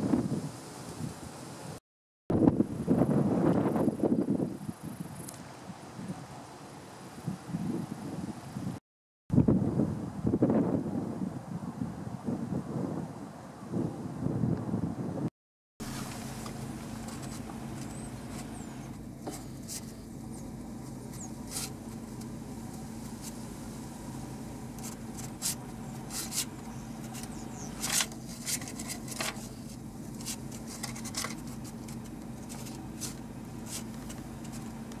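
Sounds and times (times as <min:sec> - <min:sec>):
low mechanical hum: 0:02.4 - 0:08.8, 0:15.8 - 0:35.0.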